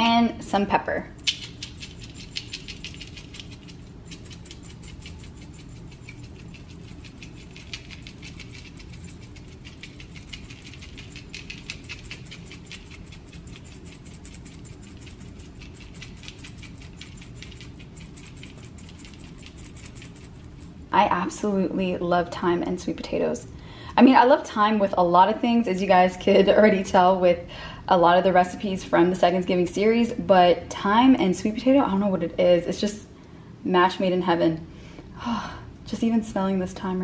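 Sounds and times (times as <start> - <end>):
pepper grinder clicking: 1.2 - 20.2.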